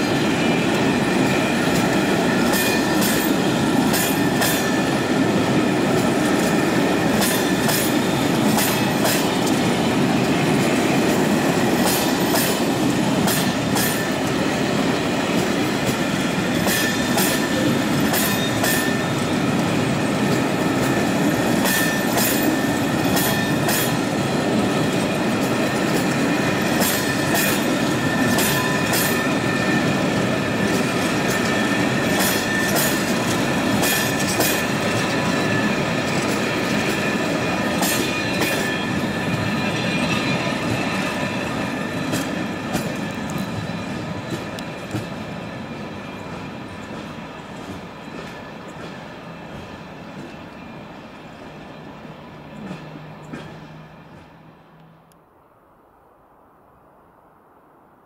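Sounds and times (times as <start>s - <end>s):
wheels clacking over rail joints: 0.0s - 50.7s, 52.4s - 54.9s
train wheels rumbling on rail: 0.0s - 55.3s
faint high wheel squeal: 16.4s - 24.0s, 26.2s - 44.2s.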